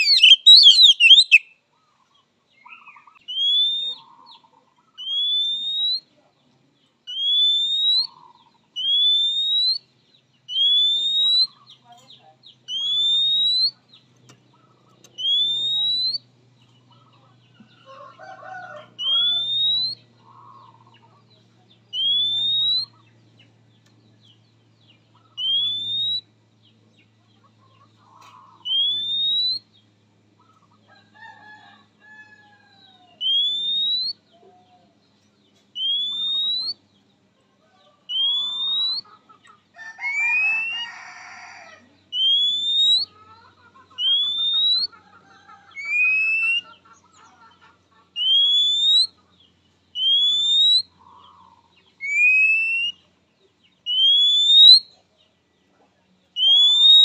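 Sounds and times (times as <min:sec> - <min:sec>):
bird rising whistle: 0:00.0 - 0:01.5, 0:15.2 - 0:16.2, 0:19.0 - 0:20.0, 0:22.0 - 0:22.9, 0:25.4 - 0:26.3, 0:28.7 - 0:29.6, 0:33.2 - 0:34.2, 0:42.2 - 0:43.1, 0:48.2 - 0:49.1, 0:50.0 - 0:50.9, 0:52.0 - 0:53.0, 0:53.9 - 0:54.8, 0:56.4 - 0:57.0
bird chirps and warbles: 0:00.0 - 0:41.0, 0:41.8 - 0:57.0.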